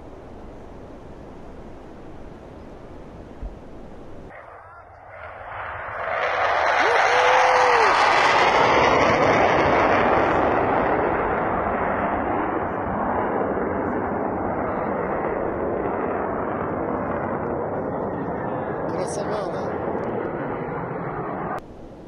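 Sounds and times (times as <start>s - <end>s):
jet engine roar: 0.0s - 22.0s.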